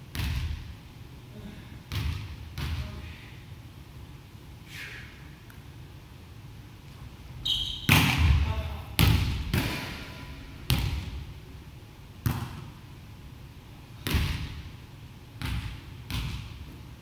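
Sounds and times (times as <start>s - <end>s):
volleyball smacks with echo: 7.9s - 11.2s, 12.2s - 12.7s, 14.0s - 14.7s, 15.4s - 16.6s.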